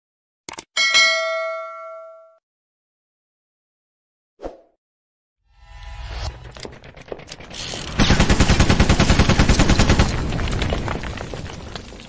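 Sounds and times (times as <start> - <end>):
machine-gun-style burst: 6.8 - 10.8.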